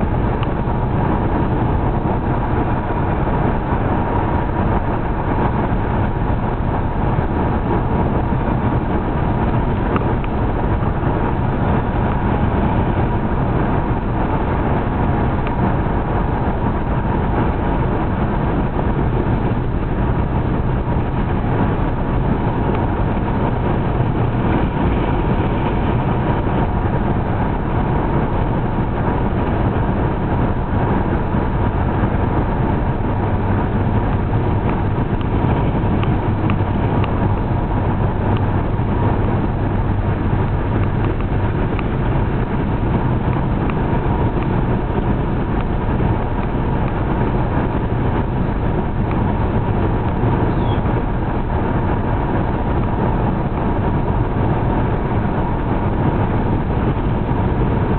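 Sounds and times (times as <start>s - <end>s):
car engine hum: 0.0s - 57.9s
tyre noise on road: 0.0s - 57.9s.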